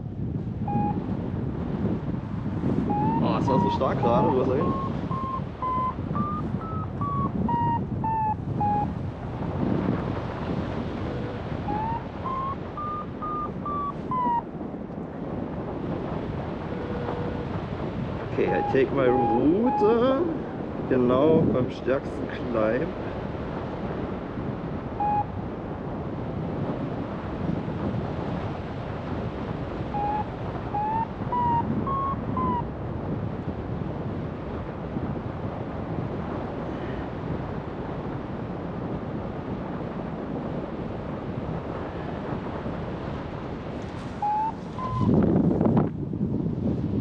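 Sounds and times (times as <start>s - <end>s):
wind rushing over microphone: 0.0s - 47.0s
variometer short beeps: 0.7s - 1.0s, 2.9s - 8.9s, 11.1s - 14.4s, 18.5s - 19.9s, 25.0s - 25.3s, 29.9s - 32.6s, 44.2s - 45.2s.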